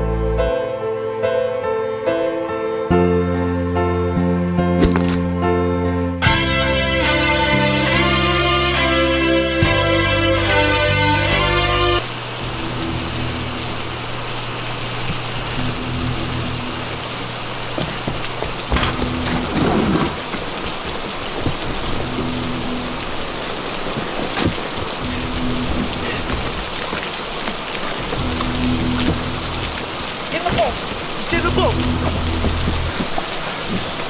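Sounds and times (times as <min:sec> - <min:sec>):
guitar music: 0:05.2 - 0:14.2, 0:25.0 - 0:26.6, 0:28.1 - 0:30.2, 0:31.3 - 0:33.0
heavy rain falling: 0:12.0 - 0:34.0.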